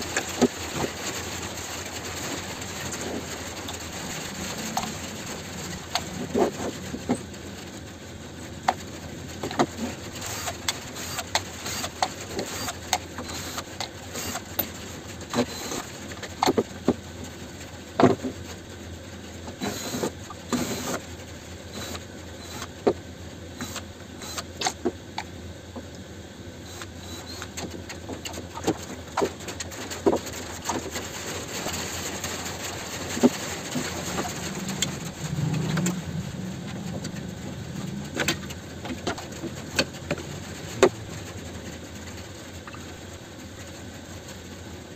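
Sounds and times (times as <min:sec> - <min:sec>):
tools and parts clicking and rattling: 0:09.4 - 0:16.9
cordless drill-driver: 0:10.2 - 0:14.5, 0:19.6 - 0:21.0, 0:21.7 - 0:22.7, 0:23.6 - 0:24.5.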